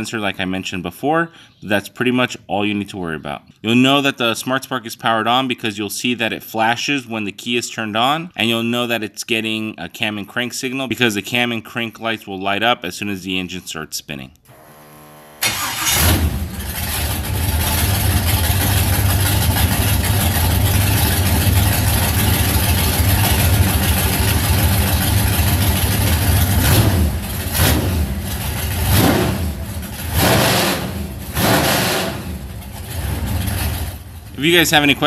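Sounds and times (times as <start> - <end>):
boat engine idling and revving: 15.9 - 35.0.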